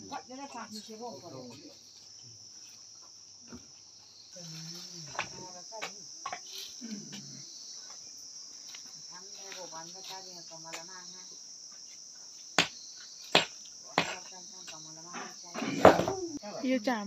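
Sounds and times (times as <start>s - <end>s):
crickets trilling: 0.0s - 17.0s
sharp knocks: 12.6s - 14.3s.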